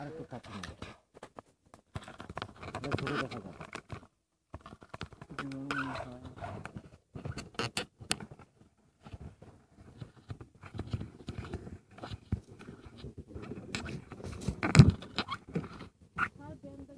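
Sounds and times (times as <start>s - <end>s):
rustling and scraping: 0.0s - 16.9s.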